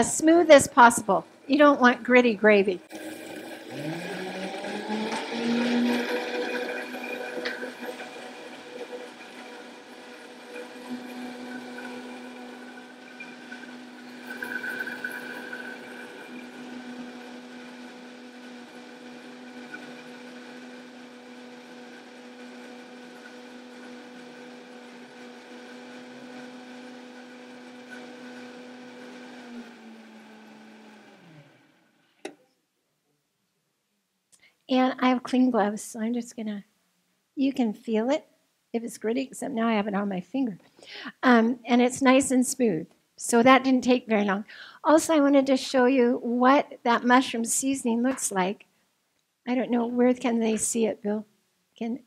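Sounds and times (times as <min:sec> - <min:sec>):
blender whirring: 0:02.8 - 0:32.4.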